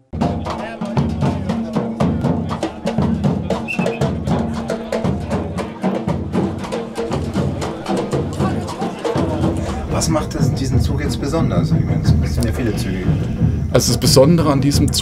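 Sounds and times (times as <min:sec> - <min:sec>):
drum group beating large drums: 0:00.2 - 0:15.0
deep bass: 0:06.2 - 0:15.0.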